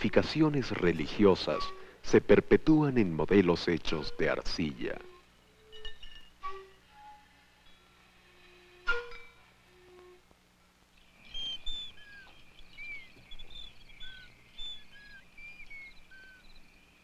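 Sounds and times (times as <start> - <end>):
birds chirping and whistling: 0.8 - 1.9, 11.0 - 17.0.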